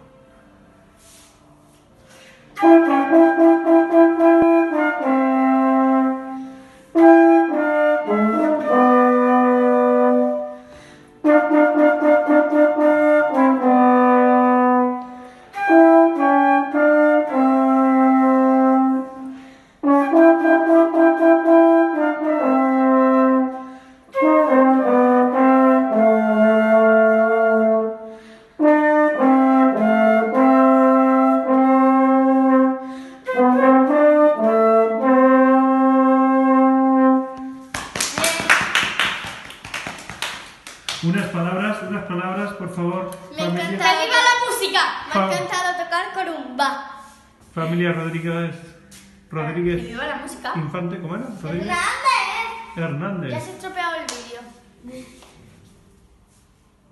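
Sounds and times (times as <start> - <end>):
french horn and flute duet: 2.6 - 37.7.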